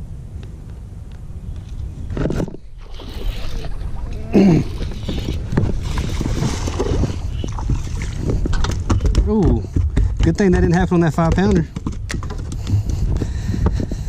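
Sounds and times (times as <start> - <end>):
short falling grunt: 3.5 - 4.9.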